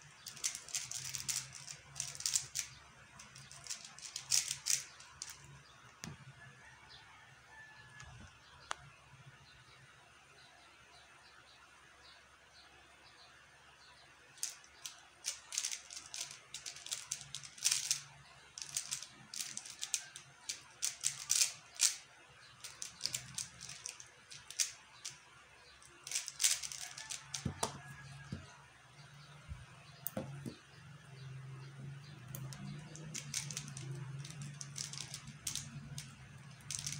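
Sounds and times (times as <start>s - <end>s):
speed cube plastic clicks: 0.1s - 5.5s, 14.4s - 22.0s, 22.6s - 25.2s, 25.9s - 28.4s, 32.3s - 36.9s.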